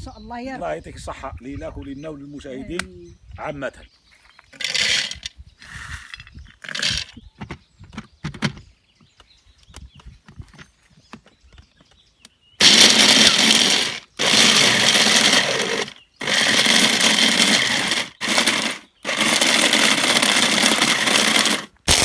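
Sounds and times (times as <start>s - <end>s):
hand blender grinding: 4.6s - 7.1s, 12.6s - 22.0s.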